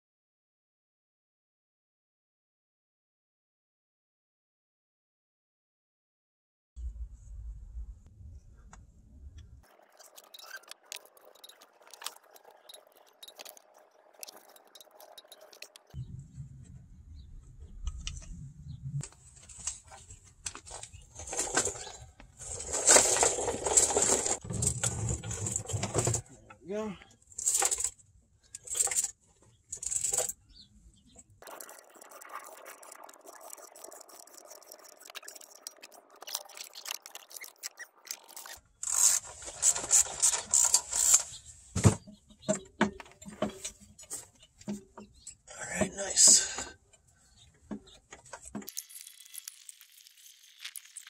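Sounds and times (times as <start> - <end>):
low rumble: 6.8 - 9.6, 16.0 - 19.0
metal scraping and rubbing: 9.7 - 16.0, 17.8 - 26.2, 28.6 - 30.4, 31.4 - 45.4
scraping on gritty asphalt: 19.3 - 26.2.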